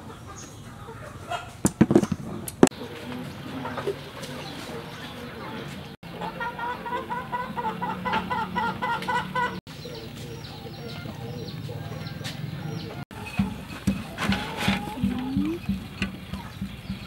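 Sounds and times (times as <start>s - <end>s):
chickens clucking: 0.0s - 17.0s
small birds chirping: 0.0s - 17.0s
sharp knocks: 1.6s - 2.8s, 13.1s - 17.0s.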